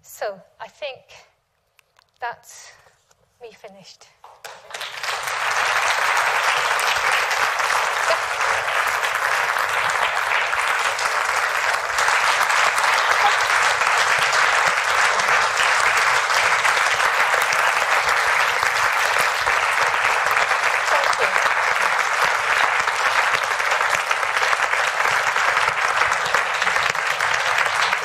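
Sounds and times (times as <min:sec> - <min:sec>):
audience applauding: 0:04.4 - 0:28.0.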